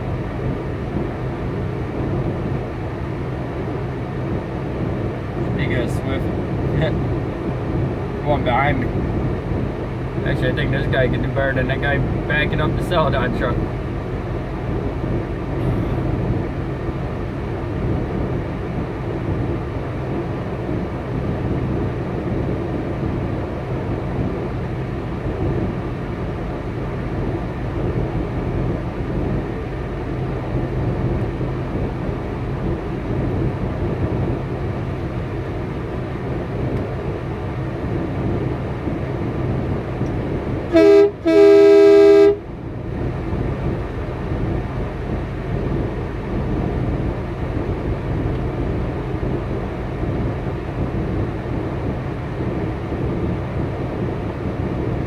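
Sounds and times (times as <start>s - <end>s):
truck engine idling: 0.0s - 55.0s
two-note vehicle horn: 40.7s - 42.4s.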